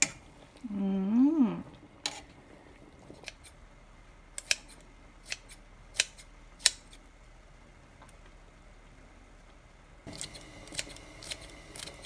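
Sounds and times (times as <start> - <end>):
kitchen scissors snipping: 4.4 - 7.0, 10.1 - 12.0.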